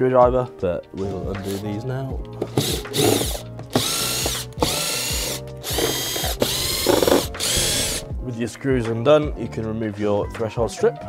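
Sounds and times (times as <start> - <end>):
cordless driver spinning out screws: 2.5 - 8.0.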